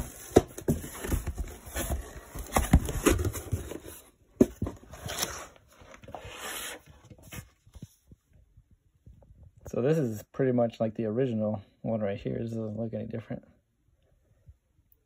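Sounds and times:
cardboard and plastic rustling: 0:00.0 - 0:08.4.

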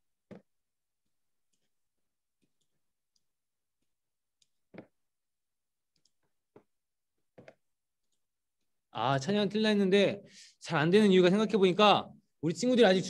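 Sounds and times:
computer mouse clicks: 0:05.9 - 0:06.7.

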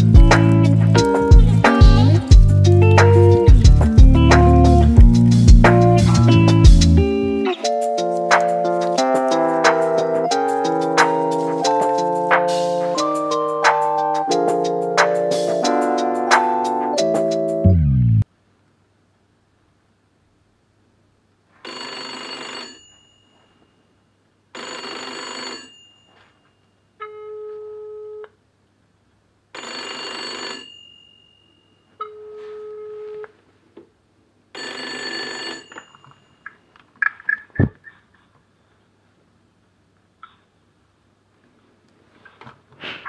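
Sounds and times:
telephone bell ringing: 0:21.6 - 0:23.6, 0:24.6 - 0:26.5, 0:29.6 - 0:33.2, 0:34.6 - 0:36.6.

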